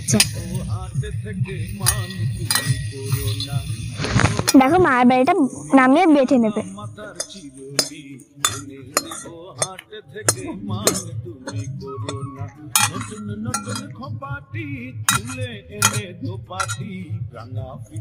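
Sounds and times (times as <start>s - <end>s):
metal spatula scraping and clinking: 0.0s - 0.6s, 1.7s - 4.7s, 7.0s - 14.0s, 15.1s - 17.0s.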